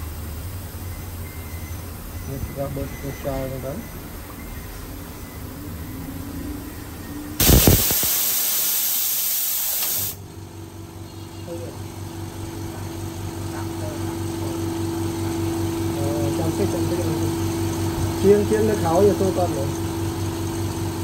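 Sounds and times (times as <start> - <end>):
air compressor motor humming: 6.9 - 21.0
compressed air hissing: 7.4 - 10.2.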